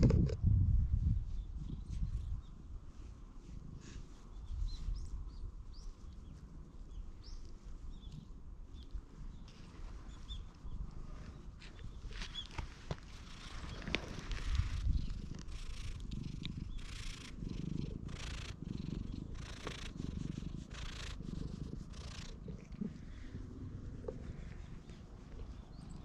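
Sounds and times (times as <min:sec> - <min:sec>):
cat purring: 0:12.6 - 0:26.0
hand rustling fur: 0:19.4 - 0:26.0.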